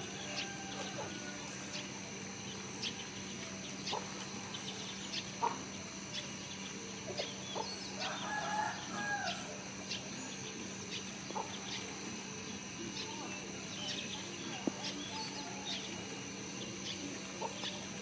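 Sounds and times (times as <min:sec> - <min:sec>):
rooster crowing: 0:00.0 - 0:01.8, 0:08.0 - 0:09.7
steady high whine: 0:00.0 - 0:18.0.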